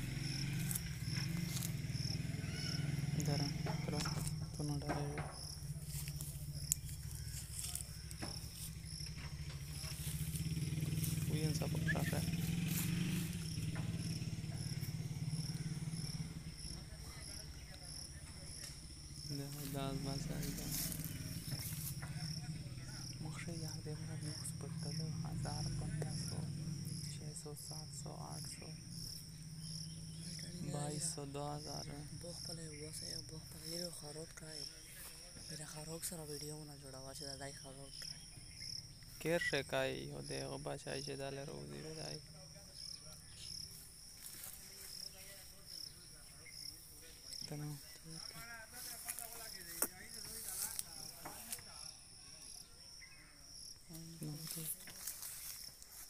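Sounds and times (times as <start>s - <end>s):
insects chirping: 0.0s - 56.0s.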